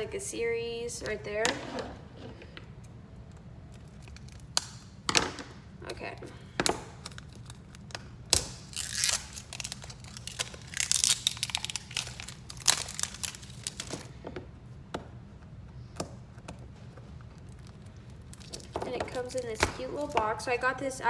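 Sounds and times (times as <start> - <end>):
packaging crinkled and torn: 3.7 - 4.8, 7.0 - 14.2, 17.3 - 19.4.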